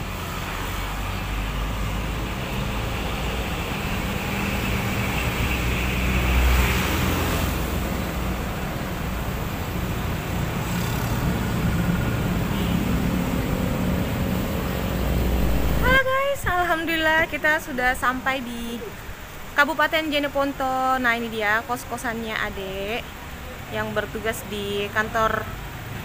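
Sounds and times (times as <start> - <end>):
tyre noise on road: 0.0 - 16.3
car engine: 5.5 - 17.4.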